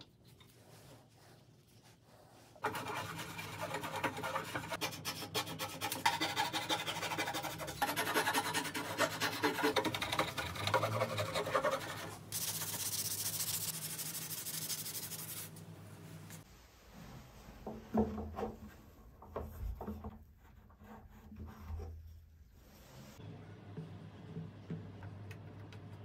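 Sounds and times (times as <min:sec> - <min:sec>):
hand saw cutting wood: 0:02.6 - 0:12.1
sandpaper rubbing wood: 0:02.6 - 0:15.5.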